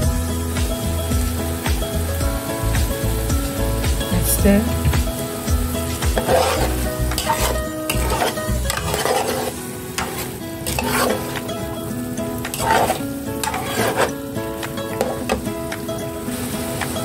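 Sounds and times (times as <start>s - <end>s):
background music with held notes: 0.0s - 17.0s
stew sizzling: 0.0s - 17.0s
spoon scraping a pot: 6.2s - 11.5s, 12.4s - 15.4s.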